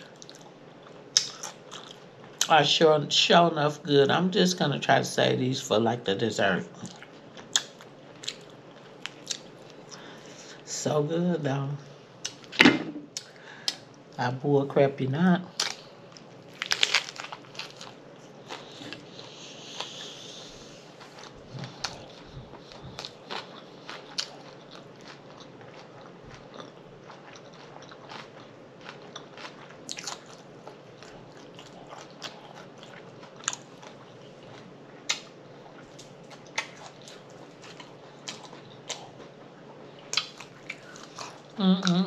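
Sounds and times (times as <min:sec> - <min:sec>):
person chewing crunchy food: 0:00.0 - 0:02.5, 0:06.8 - 0:10.2, 0:15.5 - 0:42.0.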